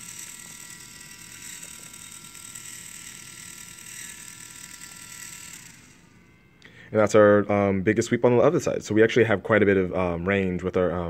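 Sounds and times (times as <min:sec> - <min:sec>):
servo motor whining: 0:00.0 - 0:07.2.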